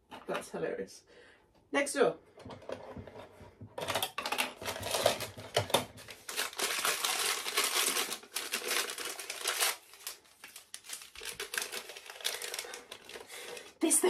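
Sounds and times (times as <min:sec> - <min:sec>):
plastic bag crinkling: 0:03.8 - 0:14.0.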